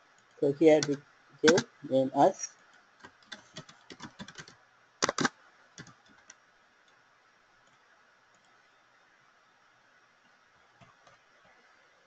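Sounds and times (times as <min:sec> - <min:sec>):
faint room hiss: 0:00.0 - 0:12.0
computer keyboard keystrokes: 0:00.8 - 0:01.7, 0:03.0 - 0:06.4.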